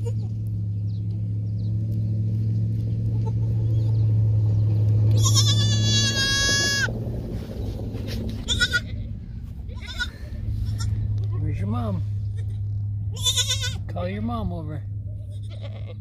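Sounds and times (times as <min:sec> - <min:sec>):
goat kid bleating: 0:00.0 - 0:00.4, 0:05.1 - 0:06.9, 0:08.4 - 0:11.0, 0:12.3 - 0:13.8, 0:15.2 - 0:16.0
steady low hum: 0:00.0 - 0:16.0.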